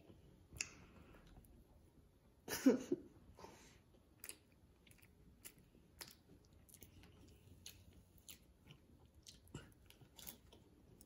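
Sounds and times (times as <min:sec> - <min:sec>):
child chewing with mouth clicks: 0:03.8 - 0:11.0.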